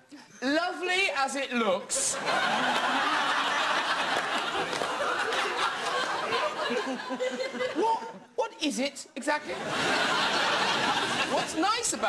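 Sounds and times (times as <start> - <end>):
audience laughing: 2.0 - 8.3, 9.5 - 12.0.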